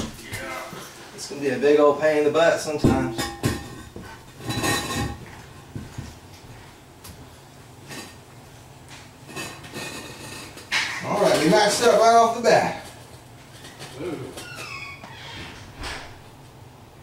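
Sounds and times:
toilet bowl knocks and clinks: 2.8s - 5.9s
porcelain toilet scraping: 2.9s - 5.6s.

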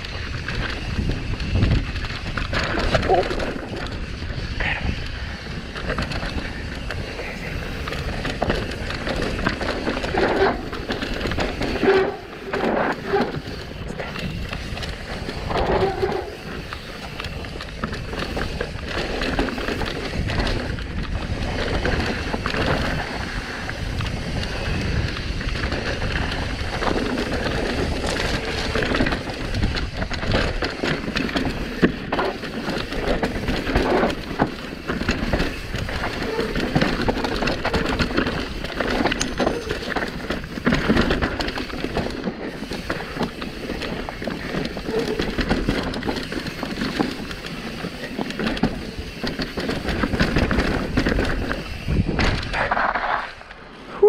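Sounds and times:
wind on microphone: 0.0s - 30.6s, 49.8s - 54.0s
bike clattering over bumps: 0.0s - 53.8s
bike tyres rumbling over dirt: 0.0s - 54.0s.

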